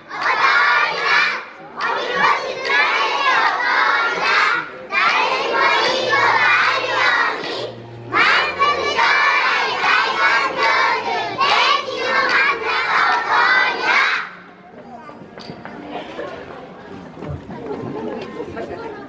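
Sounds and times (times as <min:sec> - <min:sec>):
children chanting in unison: 0:00.0 - 0:14.3.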